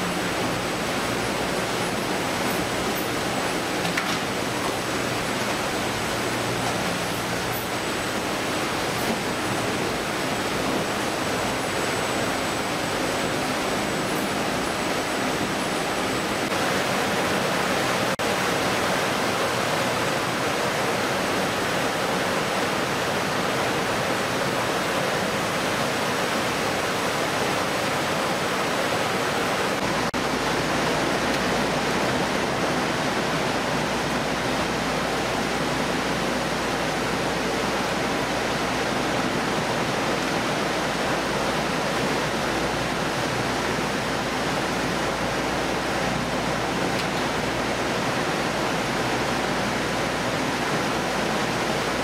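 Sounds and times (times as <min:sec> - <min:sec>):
processing line noise: 0:00.0 - 0:18.2
water jets spraying: 0:00.0 - 0:52.0.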